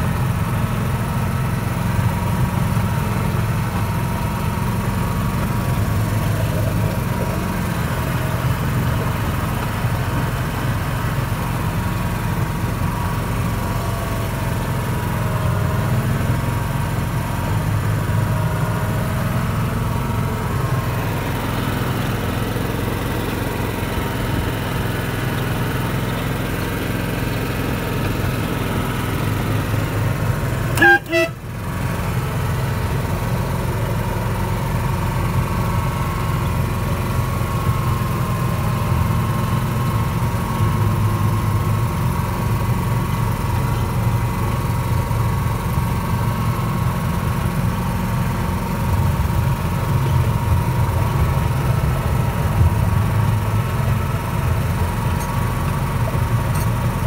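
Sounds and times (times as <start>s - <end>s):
locomotive engine running: 0.0s - 57.0s
locomotive horn toot: 30.7s - 31.7s.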